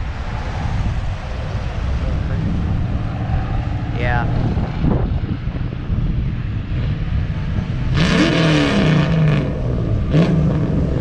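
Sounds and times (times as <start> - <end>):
car engine revving: 0.0 - 11.0
low rumble of traffic: 0.0 - 11.0.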